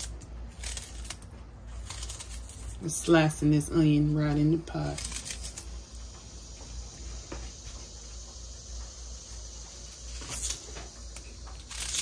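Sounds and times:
knife slicing onion: 0:09.9 - 0:12.0.

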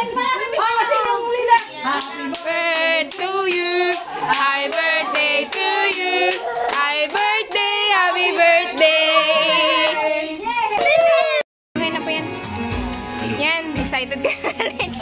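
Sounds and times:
person singing a song: 0:01.1 - 0:10.5
people clapping in time: 0:01.5 - 0:10.0.

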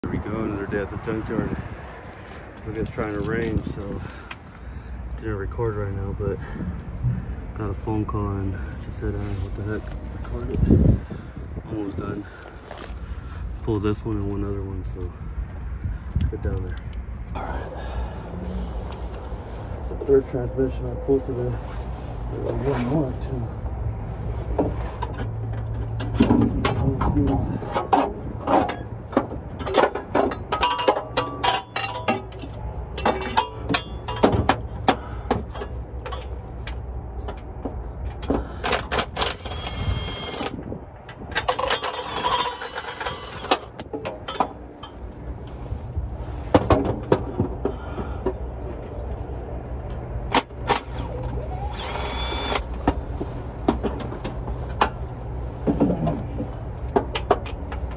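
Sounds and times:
steady low rumble: 0:00.0 - 0:50.6
metallic clicks and clanks: 0:25.0 - 0:37.5, 0:40.4 - 0:45.0
cordless power tool whining: 0:39.1 - 0:40.6, 0:41.6 - 0:43.7, 0:50.7 - 0:52.8.

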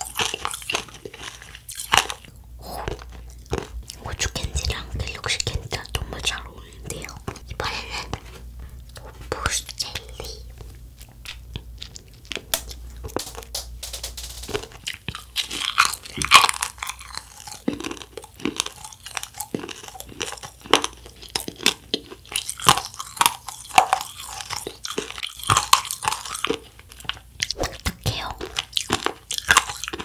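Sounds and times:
wafer candy crunching: 0:00.0 - 0:04.5, 0:09.9 - 0:13.6, 0:14.5 - 0:30.0.

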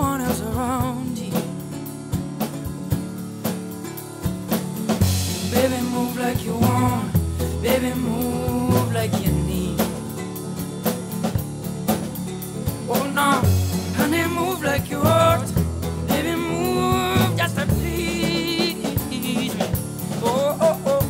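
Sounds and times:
sung vocal: 0:00.0 - 0:01.8, 0:05.2 - 0:10.4, 0:12.7 - 0:21.0
steady drum beat: 0:00.0 - 0:21.0.

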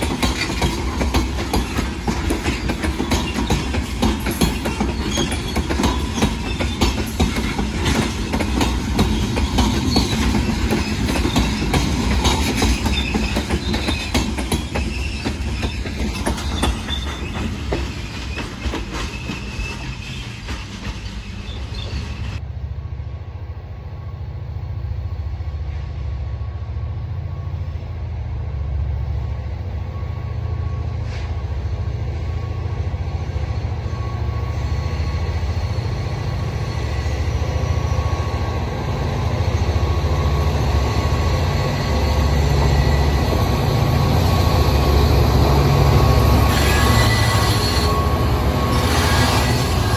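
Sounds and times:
train wheels clicking over rail joints: 0:00.0 - 0:22.4.

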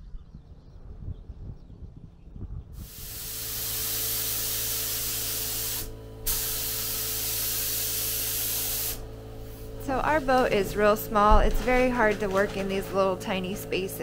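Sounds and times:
low hum: 0:00.0 - 0:14.0
paint spray gun hissing: 0:02.8 - 0:12.8.

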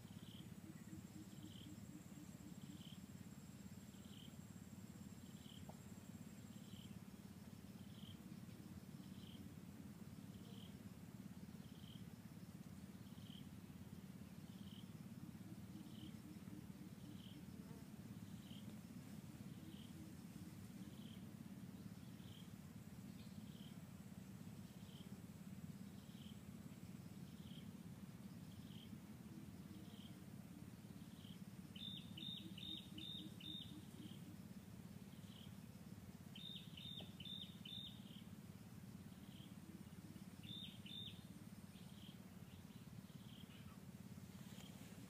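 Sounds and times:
low steady rumble: 0:00.0 - 0:45.0.

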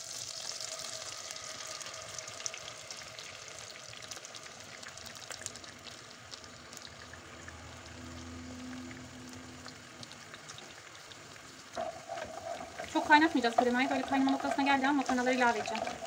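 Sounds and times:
butter and oil sizzling in a pan: 0:00.0 - 0:16.0
cream pouring: 0:09.7 - 0:16.0.

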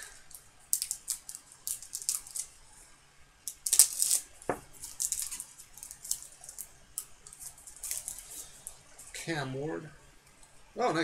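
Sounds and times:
foil wrapper crinkling and tearing: 0:00.3 - 0:02.5, 0:03.5 - 0:08.8.

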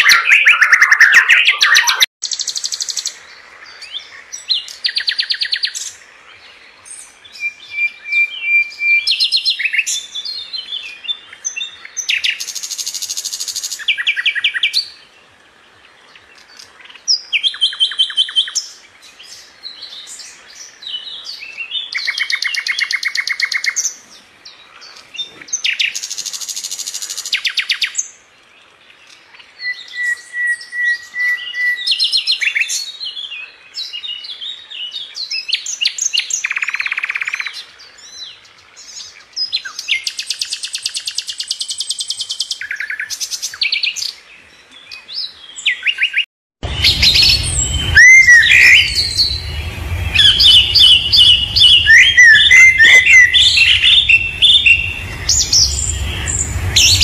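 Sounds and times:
nightingale singing trills: 0:00.0 - 0:15.2, 0:29.3 - 0:56.7
long whistled bird note: 0:46.6 - 0:57.0.

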